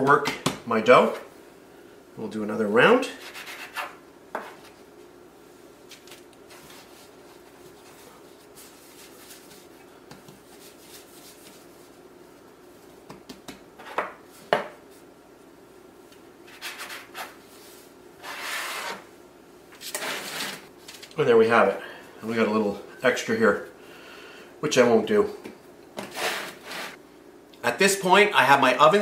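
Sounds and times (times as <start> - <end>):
hands rubbing and patting dough: 5.8 - 13.7.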